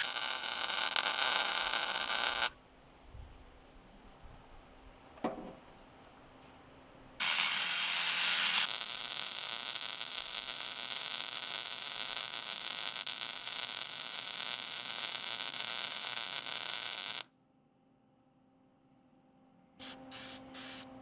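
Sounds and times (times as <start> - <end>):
arc welding crackle: 0.0 - 2.6, 7.2 - 17.3.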